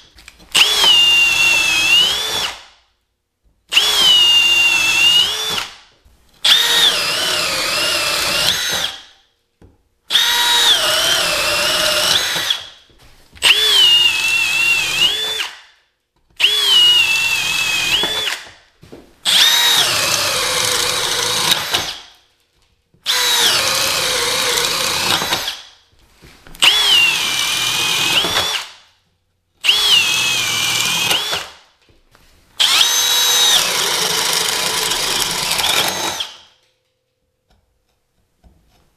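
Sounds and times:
cordless drill boring into wood: 0.5s - 2.6s, 3.7s - 5.8s, 6.4s - 9.0s, 10.1s - 12.7s, 13.4s - 15.5s, 16.4s - 18.4s, 19.3s - 22.0s, 23.0s - 25.6s, 26.6s - 28.7s, 29.6s - 31.5s, 32.6s - 36.4s.

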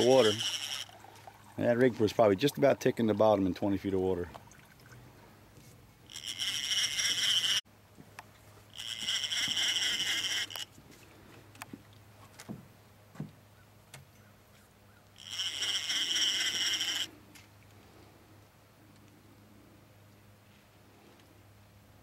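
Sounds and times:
faint reel clicks: 0.0s - 1.1s, 6.0s - 7.6s, 8.2s - 10.7s, 15.1s - 17.5s
fishing reel whirring: 0.0s - 1.3s, 6.0s - 7.6s, 8.7s - 10.8s, 15.2s - 17.2s.

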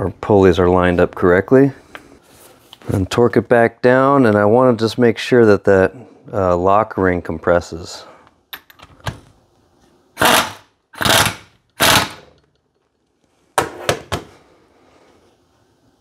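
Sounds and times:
pneumatic impact wrench hammering: 10.2s - 12.4s.

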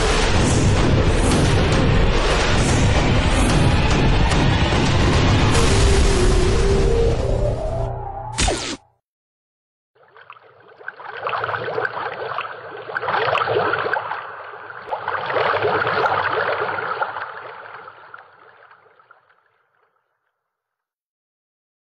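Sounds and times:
noisy crackling rush: 0.0s - 6.5s.

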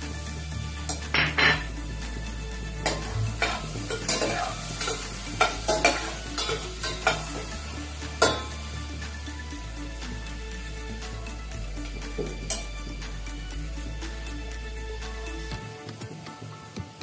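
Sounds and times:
vegetables sizzling: 0.0s - 15.4s
metal utensil scraping pot: 0.9s - 1.9s, 2.8s - 8.7s.

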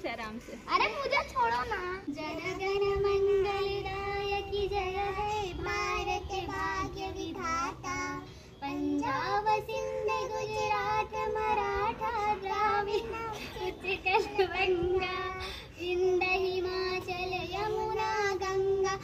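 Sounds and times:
children singing: 2.2s - 15.2s.

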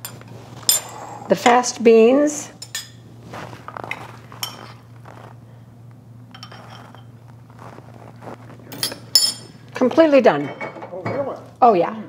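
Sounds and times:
steady low hum: 0.0s - 12.0s
spoon clinking on bowl: 6.3s - 7.1s, 8.8s - 9.5s.

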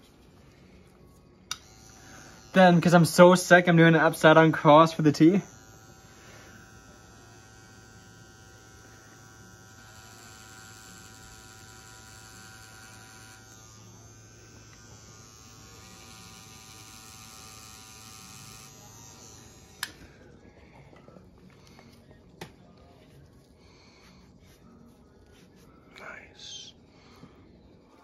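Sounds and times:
tattoo machine humming: 0.0s - 20.5s
tattoo machine switch click: 1.5s - 2.5s, 16.0s - 20.0s.

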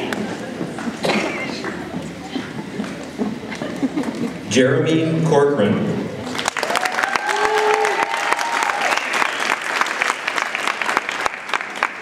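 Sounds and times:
audience applauding: 6.2s - 12.0s
people cheering: 6.3s - 12.0s.

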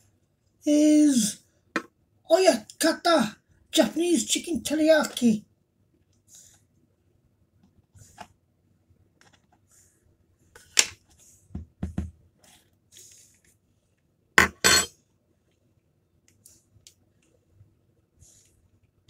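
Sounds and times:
loud knocks on a table: 11.5s - 12.2s
spoon and cup clinking: 14.4s - 14.9s.

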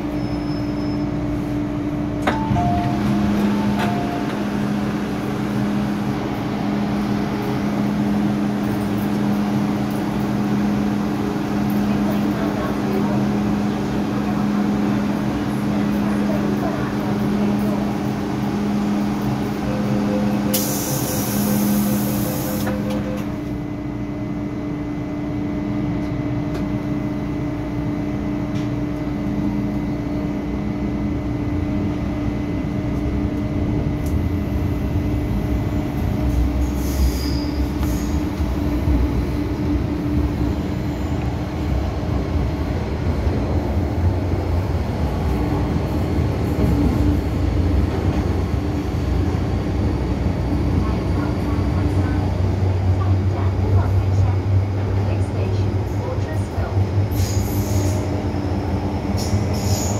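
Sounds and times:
train motor hum: 1.2s - 23.8s, 25.9s - 59.9s
door closing warning tone: 2.3s - 4.5s
train doors hissing shut: 20.4s - 23.3s, 57.1s - 58.1s, 59.2s - 59.9s.

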